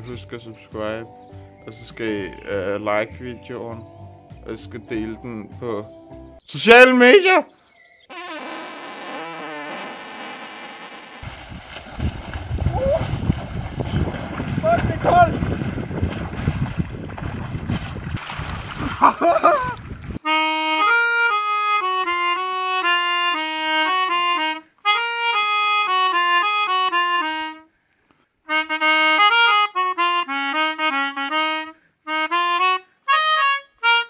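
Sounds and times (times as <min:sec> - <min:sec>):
water splashing: 0:11.2 - 0:20.2
wind on microphone: 0:11.2 - 0:20.2
melodica playing a tune: 0:20.2 - 0:27.7, 0:28.5 - 0:34.0.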